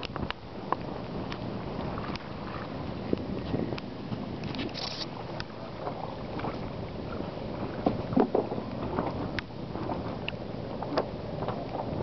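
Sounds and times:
wind on microphone: 0.0 - 12.0.

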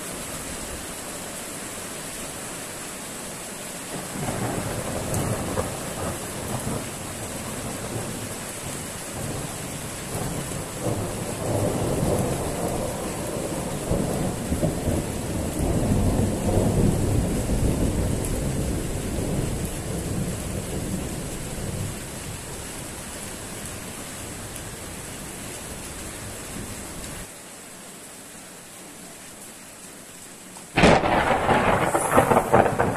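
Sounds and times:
heavy rain hissing: 0.0 - 32.9
rolling thunder: 4.1 - 22.0, 30.8 - 32.9.

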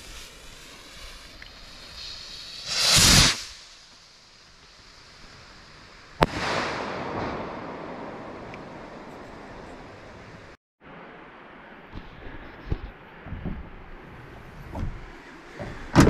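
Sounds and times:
hiss after firework burst: 0.0 - 10.6
rocket launch whoosh: 1.8 - 3.8, 6.2 - 10.0
firework bang: 2.0 - 3.7, 6.2 - 10.0.

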